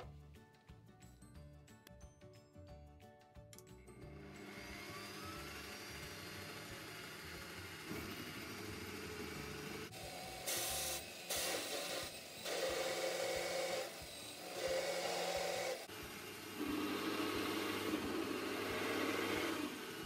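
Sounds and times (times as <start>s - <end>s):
drill press motor hum: 4.1s - 20.0s
hole saw cutting wood: 4.4s - 20.0s.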